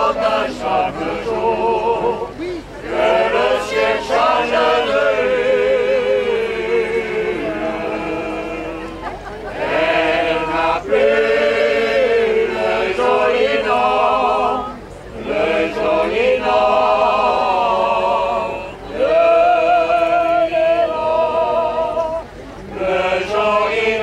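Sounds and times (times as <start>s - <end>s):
choir singing: 0.0s - 24.0s.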